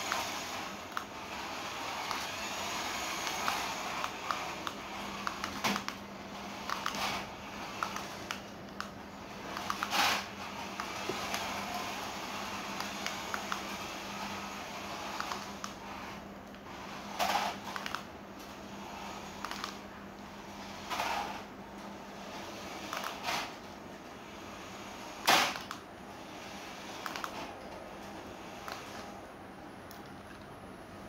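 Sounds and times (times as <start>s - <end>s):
toy car electric motor whirring: 0.0s - 5.8s, 9.4s - 16.2s
clicks: 3.2s - 6.0s, 7.8s - 10.0s, 19.4s - 20.3s, 27.0s - 27.8s, 29.8s - 30.6s.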